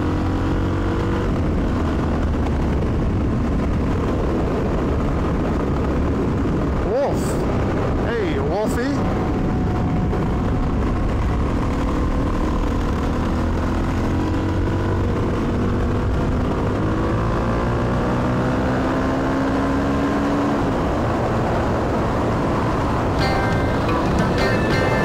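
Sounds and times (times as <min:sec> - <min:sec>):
motorcycle engine: 0:00.0 - 0:08.1, 0:09.0 - 0:25.0
wind and road noise: 0:00.0 - 0:25.0.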